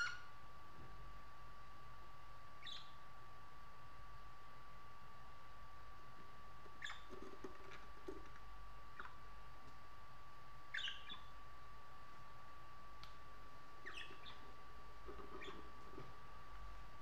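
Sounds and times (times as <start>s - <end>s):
faint steady whine: 0.0s - 17.0s
budgerigars chirping: 2.6s - 3.0s, 10.7s - 11.3s, 13.8s - 14.4s, 15.3s - 15.6s.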